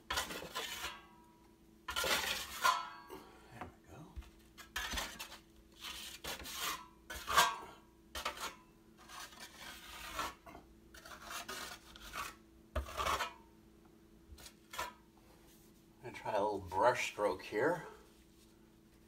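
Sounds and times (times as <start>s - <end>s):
trowel scraping wet compound: 0.0s - 1.0s, 1.9s - 2.8s, 4.6s - 13.4s, 14.4s - 15.0s.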